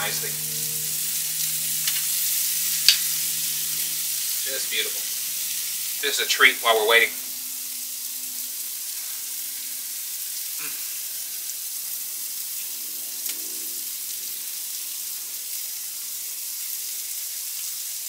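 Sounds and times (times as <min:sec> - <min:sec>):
meat sizzling on a grill: 0:00.0 - 0:18.0.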